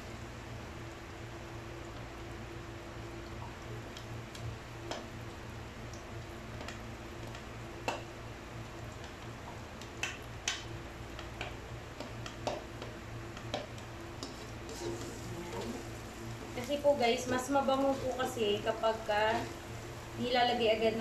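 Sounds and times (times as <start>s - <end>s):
steady low hum: 0.0s - 21.0s
garlic ticking in heating oil: 3.0s - 21.0s
spatula handled over wok: 14.2s - 15.8s.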